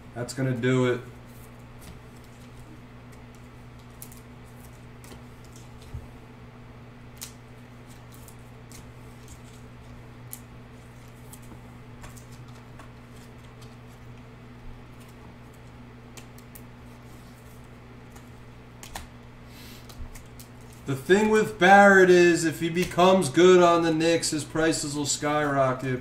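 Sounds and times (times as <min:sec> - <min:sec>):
steady low hum: 0:00.0 - 0:26.0
trading cards clicking and rustling: 0:07.1 - 0:14.2, 0:14.9 - 0:23.8.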